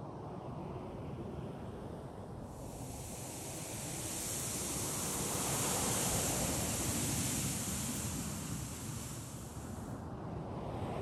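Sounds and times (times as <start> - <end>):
low wind rumble: 0.1 - 11.0
sand grains hissing: 2.5 - 9.9.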